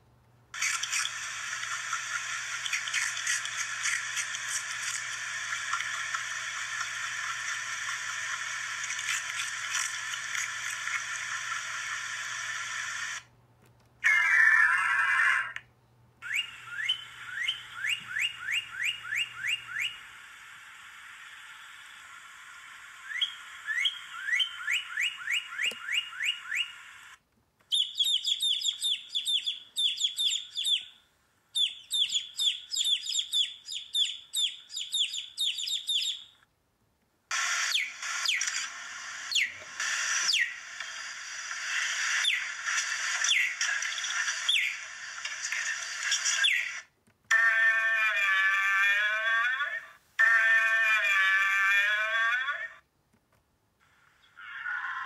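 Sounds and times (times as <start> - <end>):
harsh animal sound: 14.0 - 15.7, 41.5 - 52.8, 54.0 - 55.0
bird whistling song: 16.2 - 20.1, 23.0 - 26.8, 27.7 - 31.0, 31.6 - 36.4, 37.7 - 38.6, 39.3 - 39.6, 40.2 - 40.6, 42.2 - 42.6, 43.2 - 44.9, 46.3 - 46.8
chick peeping rapidly: 27.7 - 30.9, 31.6 - 36.3.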